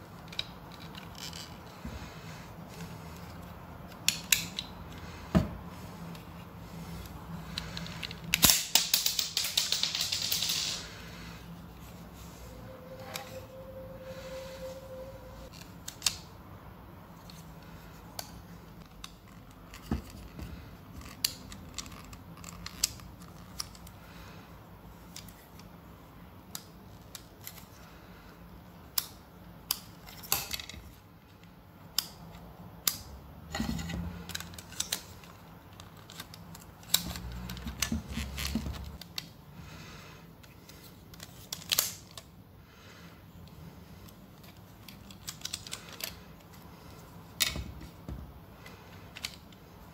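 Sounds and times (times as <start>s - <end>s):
plastic parts clicking and snapping: 0.1s - 2.1s, 3.1s - 5.4s, 7.0s - 10.6s, 17.2s - 24.0s, 28.8s - 39.4s, 40.4s - 42.4s, 43.4s - 49.9s.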